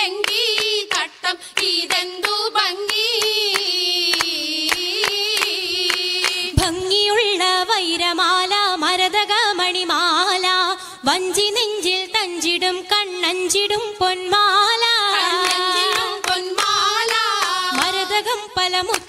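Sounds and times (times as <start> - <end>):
rhythmic hand claps: 0.0 - 7.2, 14.7 - 19.0.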